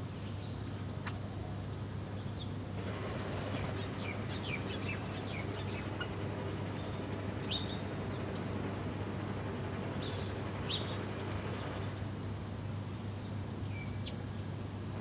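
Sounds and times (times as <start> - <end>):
small birds chirping: 0.0 - 12.1
steady low hum: 2.6 - 13.6
wings fluttering: 2.8 - 13.5.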